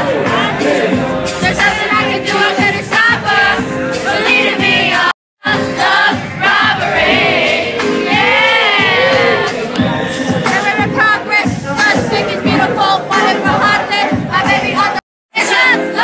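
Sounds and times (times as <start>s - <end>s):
crowd singing along: 0.0s - 16.0s
live concert music: 0.0s - 16.0s.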